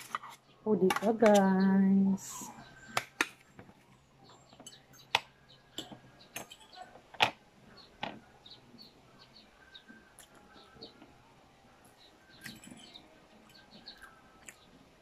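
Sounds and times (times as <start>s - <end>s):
cutlery clinking on plate: 5.8s - 6.9s.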